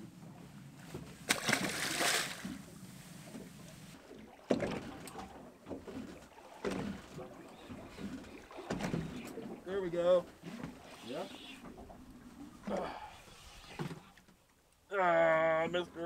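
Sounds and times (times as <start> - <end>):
water sloshing against hull: 0.0 - 16.0.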